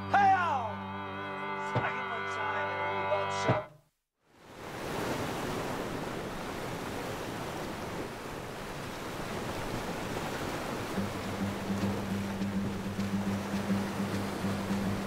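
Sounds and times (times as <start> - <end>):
surf rushing: 4.4 - 15.0.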